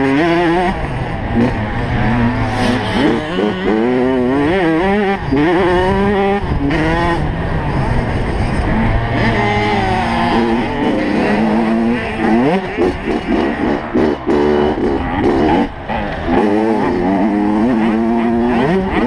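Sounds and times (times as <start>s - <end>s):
motocross bike engine revving: 0.0s - 19.0s.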